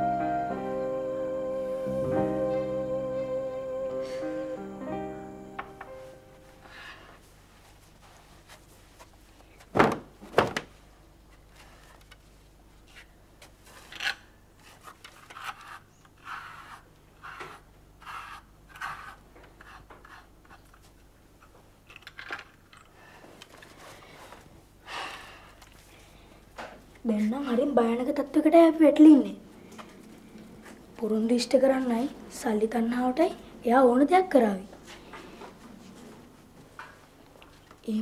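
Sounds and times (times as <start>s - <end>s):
soft scuffs and rustles: 6.3s - 9.7s, 34.6s - 37.9s.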